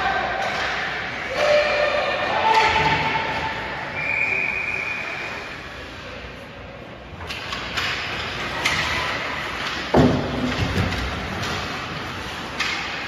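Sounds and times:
hockey sticks and puck clacking: 0:00.0 - 0:03.6, 0:07.1 - 0:13.0.

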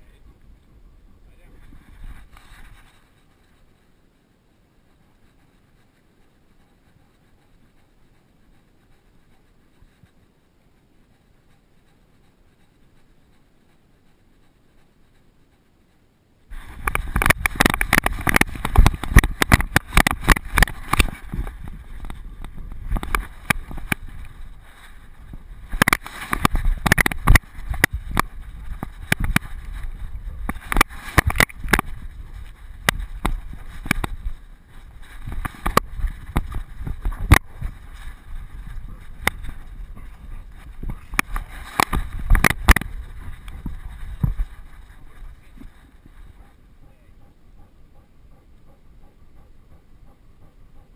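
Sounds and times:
wind on microphone: 0:00.0 - 0:03.7, 0:16.5 - 0:47.2.

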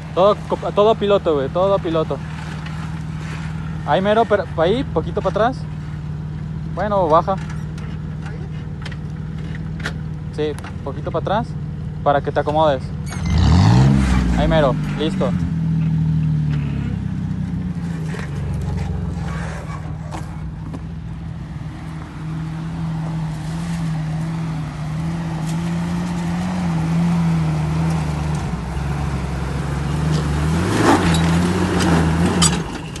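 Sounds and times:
vehicle engine running low revs: 0:12.8 - 0:33.0.

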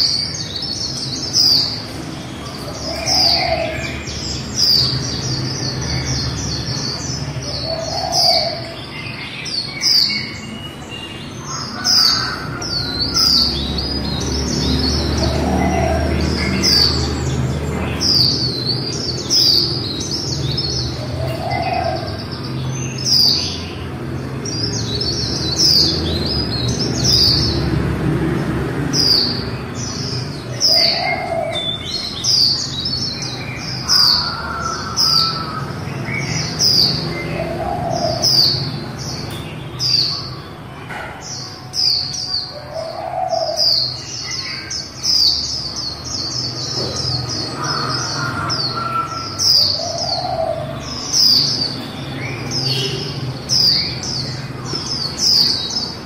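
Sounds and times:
bird twittering chirps: 0:00.0 - 0:27.8, 0:41.3 - 0:56.0.

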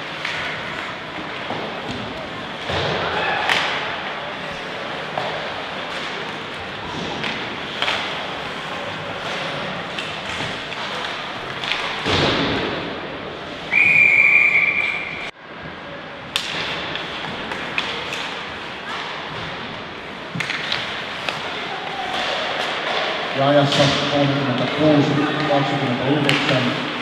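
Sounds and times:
ice rink noise: 0:00.0 - 0:27.0
referee's whistle blast: 0:13.7 - 0:15.3
hockey sticks and puck knocking: 0:16.3 - 0:19.6, 0:20.2 - 0:24.8, 0:26.2 - 0:26.8.

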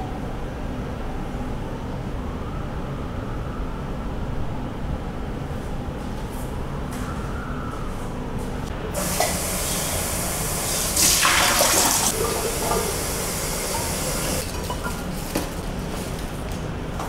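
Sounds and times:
water running from a tap: 0:09.0 - 0:15.2.

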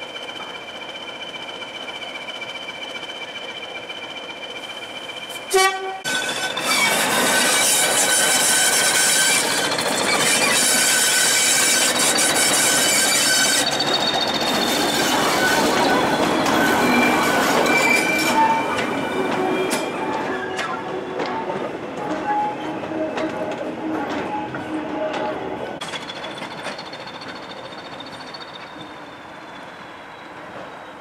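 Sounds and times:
steel wheels squealing: 0:00.0 - 0:31.0
diesel locomotive engine running: 0:08.5 - 0:30.9.

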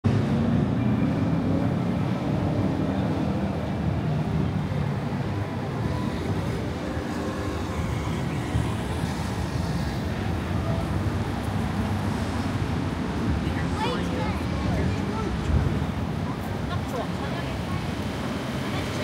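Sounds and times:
city street traffic: 0:00.0 - 0:19.0.

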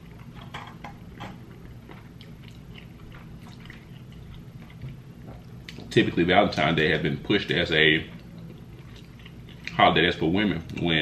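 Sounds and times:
wet noodle squishes: 0:01.6 - 0:06.0.

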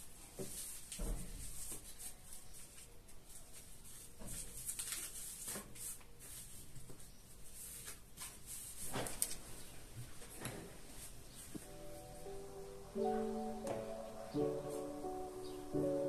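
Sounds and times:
rustles and scrapes of objects: 0:00.2 - 0:11.8.

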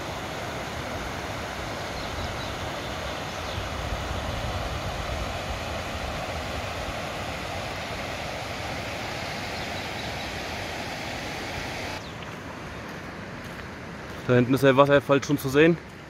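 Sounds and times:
water rushing over rocks: 0:00.0 - 0:12.0.

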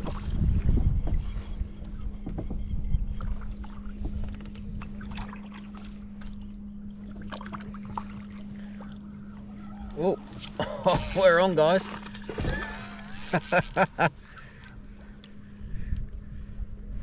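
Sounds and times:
wind rumbling on microphone: 0:00.0 - 0:05.5, 0:14.8 - 0:17.0
water lapping against kayak hull: 0:00.0 - 0:16.6
steady low hum: 0:00.0 - 0:17.0.

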